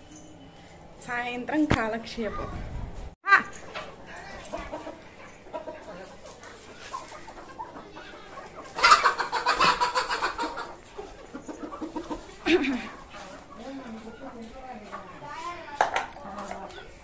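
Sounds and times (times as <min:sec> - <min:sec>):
chickens squawking: 0:03.6 - 0:15.3
chickens clucking: 0:03.6 - 0:17.0.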